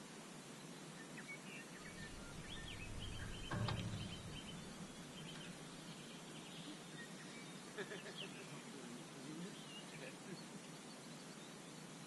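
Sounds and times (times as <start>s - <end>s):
low rumble: 1.9s - 6.0s.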